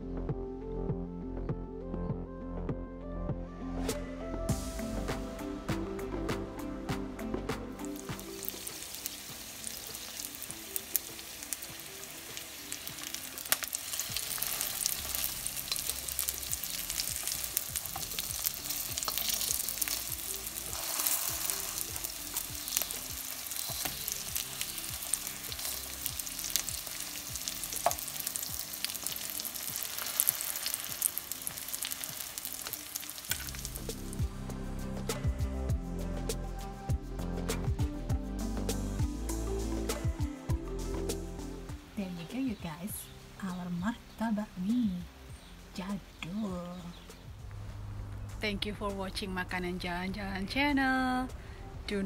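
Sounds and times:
dough frying in oil: 8.3s - 34.1s
spatula scraping wok: 13.4s - 28.5s.

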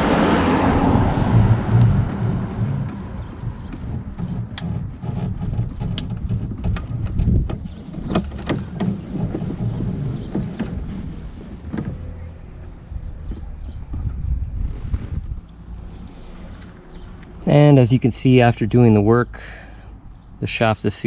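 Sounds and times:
steering rod sliding through tube: 0.0s - 12.4s, 13.3s - 16.8s
wind rumbling on microphone: 0.0s - 17.9s
outboard motor clicks and knocks: 0.1s - 14.6s, 15.2s - 19.0s.

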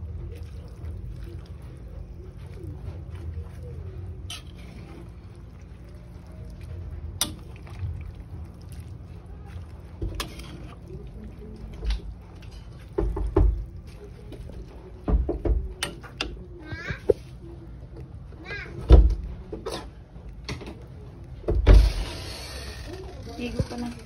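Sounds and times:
metal tongs turning leaves in pan: 0.4s - 13.0s.

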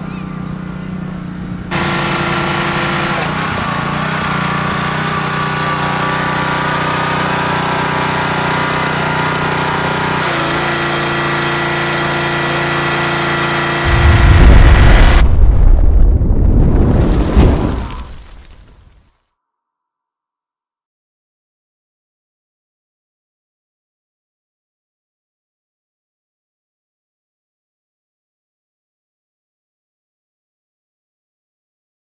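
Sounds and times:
pressure washer engine running: 0.1s - 15.2s
rumbling explosion sound effect: 13.9s - 18.9s.

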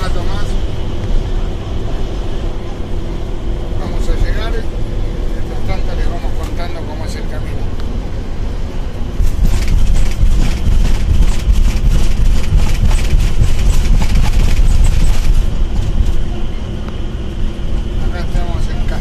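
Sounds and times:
road and engine rumble: 0.0s - 19.0s
rapid clatter: 9.2s - 16.4s.

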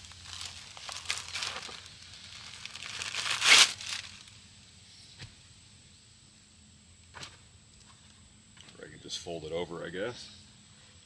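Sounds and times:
mattress pad crinkling and rustling: 0.0s - 4.3s.

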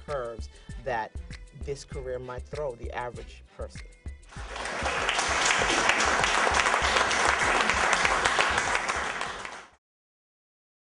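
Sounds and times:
thumping music beat: 0.0s - 9.7s
crowd applauding: 4.3s - 9.8s.

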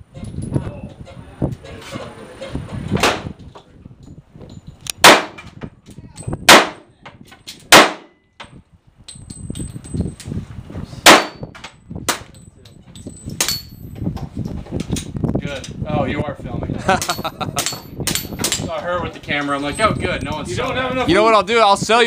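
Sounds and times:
handgun shots: 5.0s - 5.4s, 6.5s - 6.8s, 7.7s - 8.1s, 11.0s - 11.4s.

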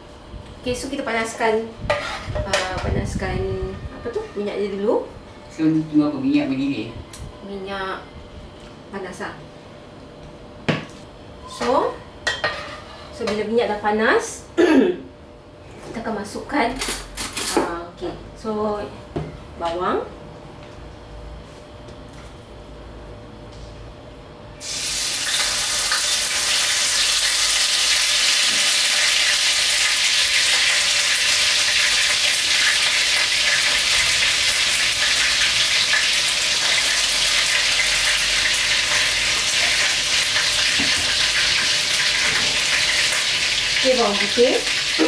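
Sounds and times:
onions sizzling in hot oil: 24.6s - 45.0s.

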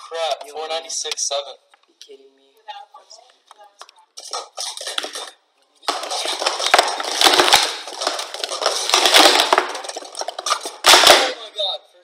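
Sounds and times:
plastic cups clattering: 4.2s - 11.4s.

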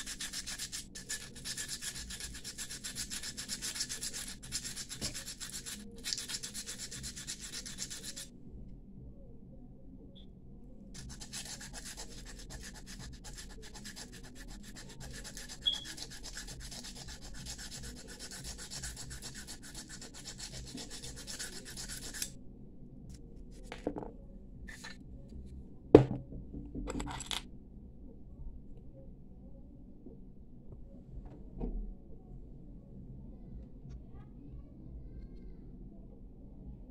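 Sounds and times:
sandpaper rubbing on metal: 0.0s - 8.3s, 11.0s - 22.3s.

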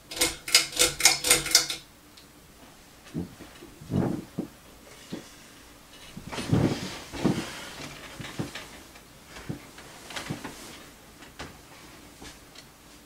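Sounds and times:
knocks and clicks: 0.0s - 1.8s
ceiling fan running: 0.0s - 13.0s.

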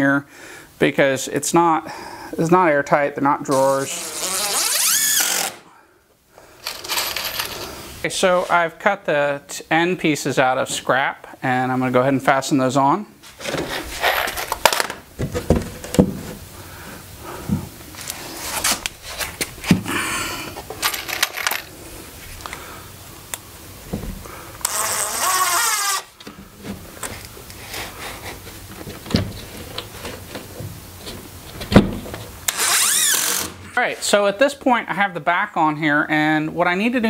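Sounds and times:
power drill motor whine: 24.6s - 26.1s, 32.5s - 33.6s.

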